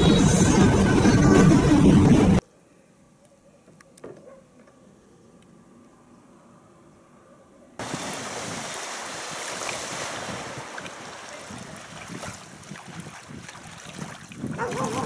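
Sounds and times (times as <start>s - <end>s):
jet ski spray rushing: 7.8s - 12.2s
wind noise on microphone: 7.8s - 15.0s.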